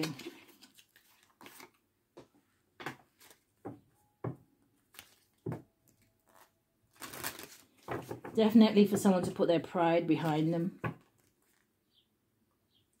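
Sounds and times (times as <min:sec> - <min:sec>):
cards being shuffled: 0:00.0 - 0:01.8, 0:04.9 - 0:08.3, 0:10.2 - 0:11.7.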